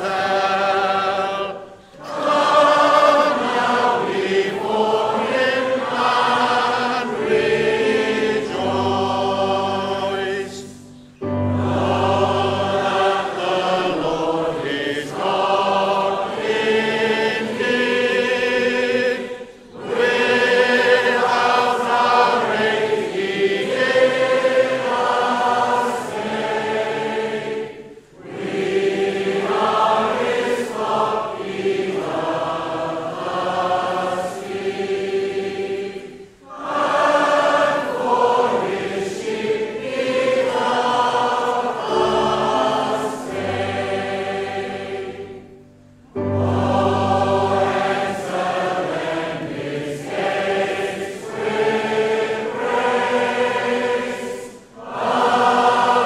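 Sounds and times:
low held accompaniment notes: 0:00.0 - 0:26.0, 0:39.6 - 0:52.1
group singing a hymn: 0:00.0 - 0:56.0.

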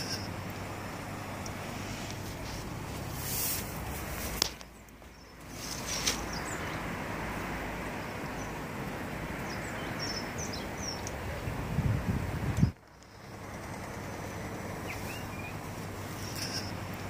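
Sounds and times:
steady background hiss: 0:00.0 - 0:17.0
high bird chirps: 0:13.0 - 0:16.8.

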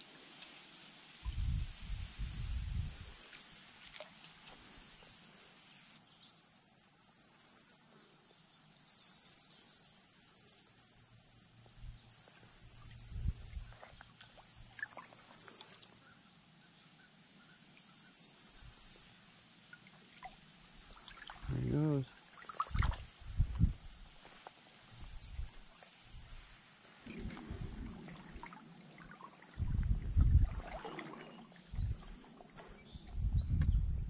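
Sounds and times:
insects buzzing: 0:00.8 - 0:03.9, 0:04.5 - 0:16.2, 0:17.0 - 0:29.6.

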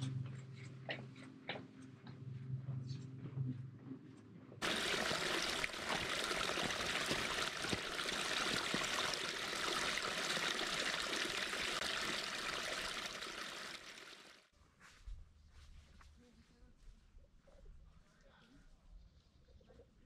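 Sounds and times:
stream trickling over rocks: 0:04.6 - 0:14.5.

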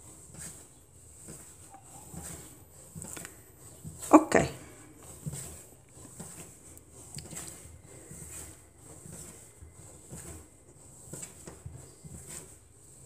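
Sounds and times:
dough kneading thuds and squishes: 0:00.0 - 0:13.0.

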